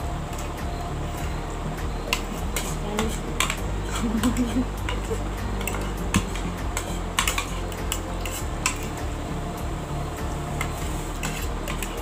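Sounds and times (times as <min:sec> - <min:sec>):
steady low hum: 0:00.0 - 0:12.0
cutlery clinking on plates: 0:02.1 - 0:09.0, 0:10.6 - 0:12.0.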